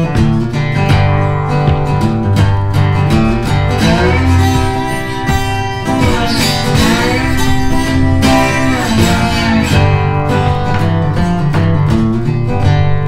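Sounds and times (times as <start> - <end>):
acoustic guitar music: 0.0 - 13.0.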